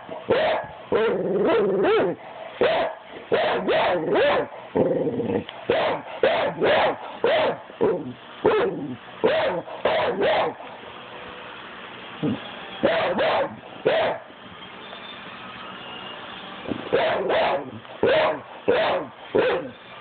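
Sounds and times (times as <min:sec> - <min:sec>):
dog barking: 0:00.1 - 0:04.6, 0:05.7 - 0:10.6, 0:12.8 - 0:14.2, 0:16.9 - 0:19.8.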